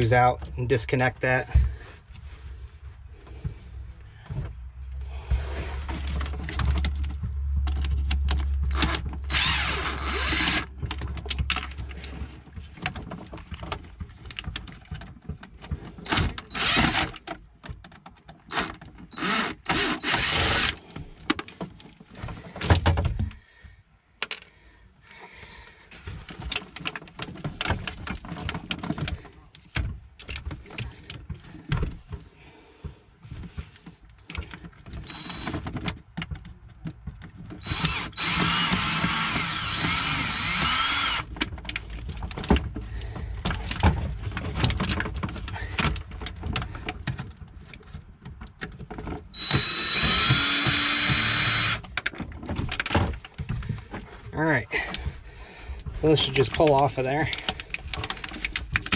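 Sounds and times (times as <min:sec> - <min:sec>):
clattering and handling noise: 0:00.0 - 0:58.9
cordless drill backing out screws: 0:08.7 - 0:10.8, 0:15.9 - 0:17.3, 0:18.5 - 0:20.8, 0:34.9 - 0:35.8, 0:37.6 - 0:41.6, 0:49.3 - 0:53.2.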